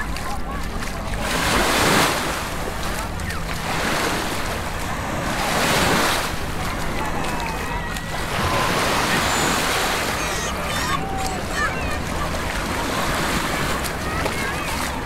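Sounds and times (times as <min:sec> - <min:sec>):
people chattering: 0:00.0 - 0:15.0
small waves washing on sand: 0:00.0 - 0:15.0.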